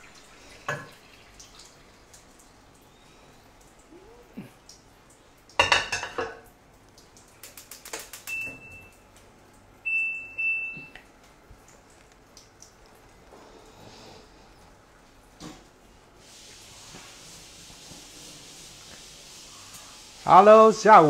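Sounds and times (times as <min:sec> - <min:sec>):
metal kitchenware clattering: 0:05.6 - 0:06.5
appliance electronic beeps: 0:08.3 - 0:09.0, 0:09.8 - 0:11.0.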